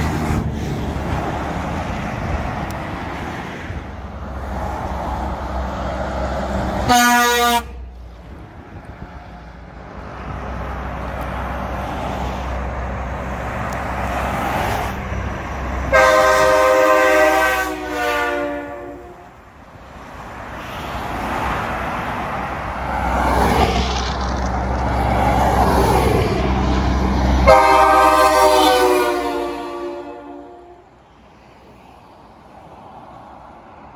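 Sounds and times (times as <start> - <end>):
heavy trucks passing: 0.0 - 33.9
truck horn: 6.8 - 8.0, 15.9 - 19.4, 27.4 - 31.0.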